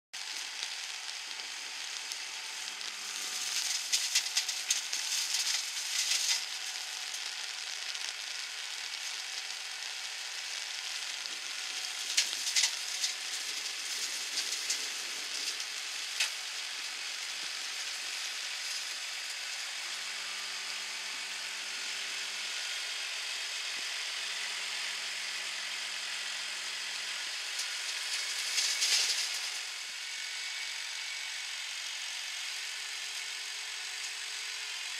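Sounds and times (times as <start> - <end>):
flail hedge cutter crackling: 0.2 - 8.2, 10.4 - 19.6, 27.6 - 29.7.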